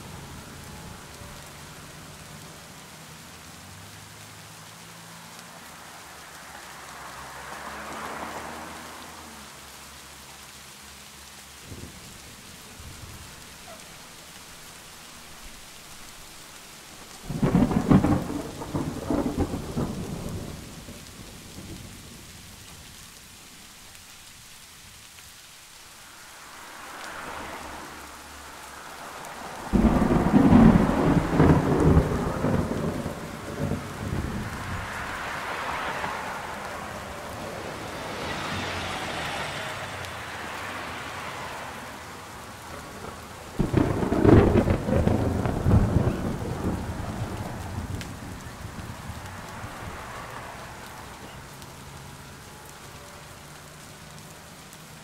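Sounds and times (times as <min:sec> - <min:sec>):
steady rain: 0:00.0 - 0:55.0
thunder rolling: 0:17.3 - 0:22.2, 0:29.4 - 0:35.2, 0:42.7 - 0:50.1.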